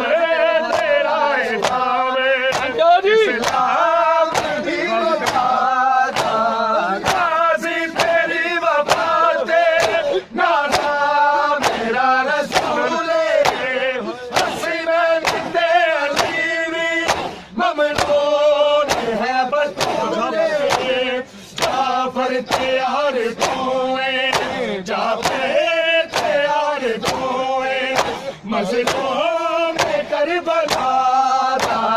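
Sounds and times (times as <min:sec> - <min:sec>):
men chanting in unison: 0:00.0 - 0:31.9
hands slapping chests: 0:00.7 - 0:02.8, 0:03.4 - 0:03.7, 0:04.3 - 0:07.3, 0:07.9 - 0:08.2, 0:08.8 - 0:09.2, 0:09.8 - 0:11.0, 0:11.6 - 0:21.9, 0:22.5 - 0:22.8, 0:23.4 - 0:23.7, 0:24.3 - 0:25.5, 0:26.1 - 0:31.0, 0:31.6 - 0:31.9.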